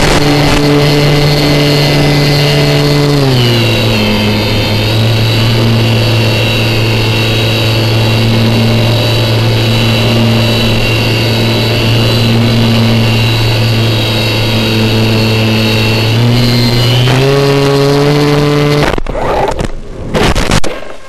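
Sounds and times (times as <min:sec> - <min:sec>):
electric motor and propeller: 0:00.0 - 0:21.0.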